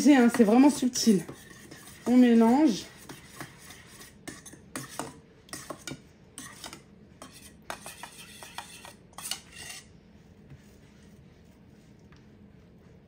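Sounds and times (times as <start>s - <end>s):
spoon scraping metal bowl: 0.0s - 10.0s.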